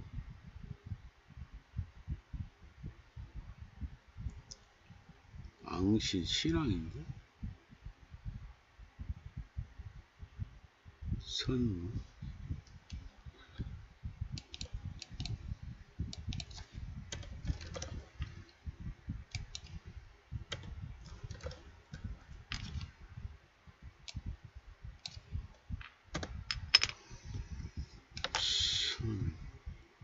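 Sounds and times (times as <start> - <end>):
typing on computer keyboard: 16.2 - 18.0, 20.5 - 21.6.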